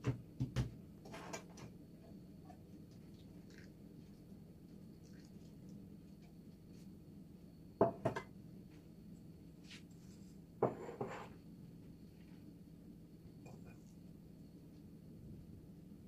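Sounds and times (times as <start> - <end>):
kitchen knocks and clatters: 0.0 - 1.7, 7.8 - 8.3, 10.6 - 11.3
steady low hum: 0.2 - 16.0.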